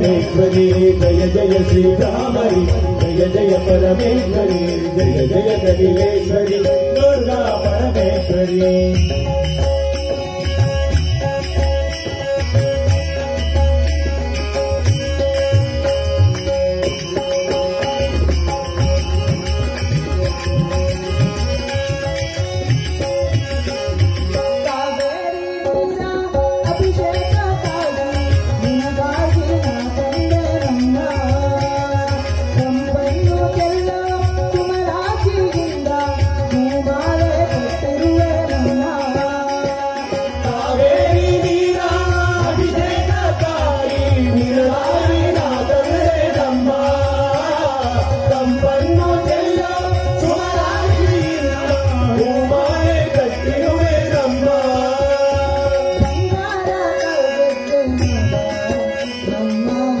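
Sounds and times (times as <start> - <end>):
men singing devotional song: 0.0 - 11.3, 26.7 - 60.0
harmonium: 0.0 - 60.0
tabla: 0.0 - 60.0.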